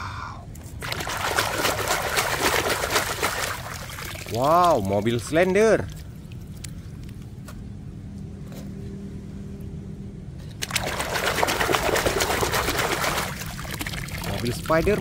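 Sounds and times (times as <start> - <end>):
low steady hum: 0.0 - 15.0
toy car splashing in water: 0.8 - 5.3, 10.6 - 15.0.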